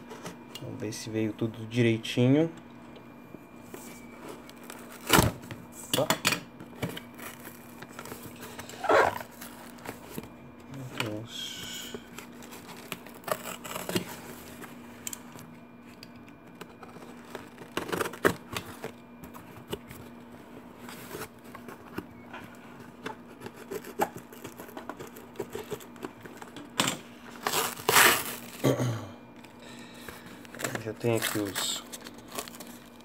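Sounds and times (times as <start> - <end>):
tape and cardboard tearing: 8.6 - 9.9, 12.7 - 14.1, 16.8 - 18.8, 23.4 - 25.9, 27.4 - 28.6.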